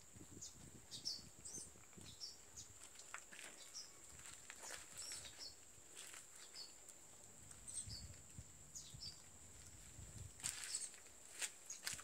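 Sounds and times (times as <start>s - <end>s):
bird chirps: 0.4s - 2.7s, 7.7s - 8.2s.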